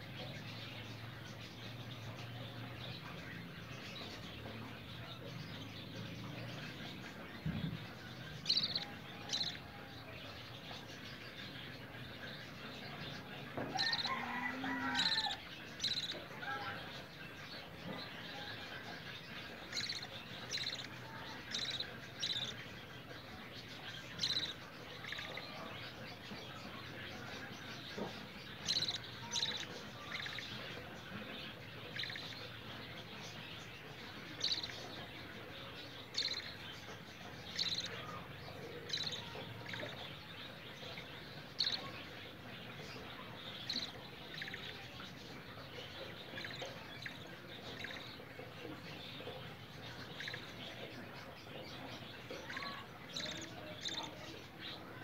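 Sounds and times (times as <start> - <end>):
faint steady background noise: 0.0 - 55.0
high bird chirps: 8.4 - 9.6, 13.7 - 16.3, 19.2 - 22.6, 23.7 - 26.3, 28.5 - 33.5, 34.3 - 35.1, 36.0 - 38.2, 38.8 - 42.0.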